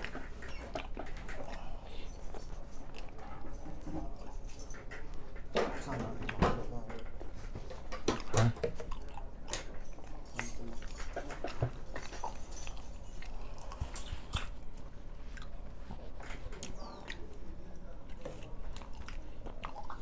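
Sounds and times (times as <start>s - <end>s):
man chewing food: 0.0s - 20.0s
mouth clicks and smacks: 10.8s - 15.6s.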